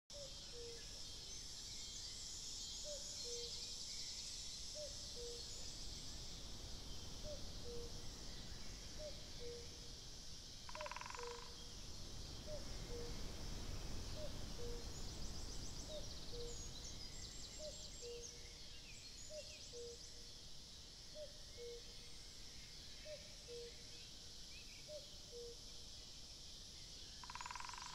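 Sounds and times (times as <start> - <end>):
high insect buzz: 2.0 - 11.8
songbird trills: 10.7 - 13.2, 14.1 - 20.3, 26.9 - 27.9.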